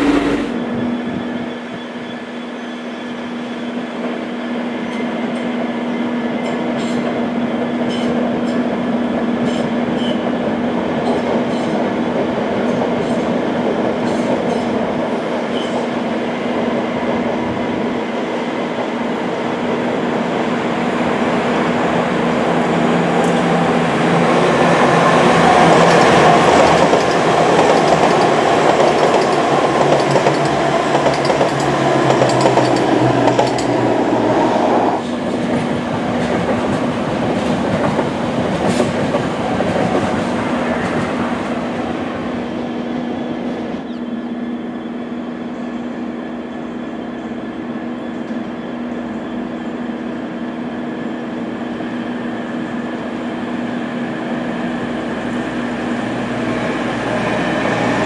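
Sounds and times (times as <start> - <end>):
low steady drone: 0.0 - 0.7
diesel train running past: 0.0 - 58.0.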